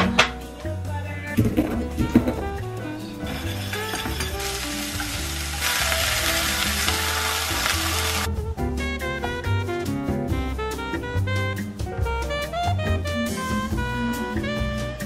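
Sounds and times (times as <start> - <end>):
background music: 0.0 - 15.0
hot oil sizzling: 3.2 - 8.3.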